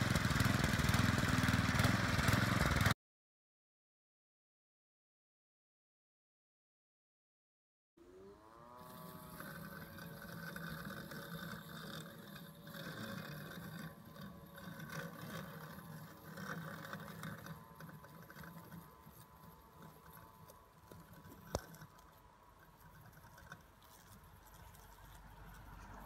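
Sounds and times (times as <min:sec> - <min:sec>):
robotic lawnmower motor hum: 0:00.0 - 0:03.0, 0:08.0 - 0:26.0.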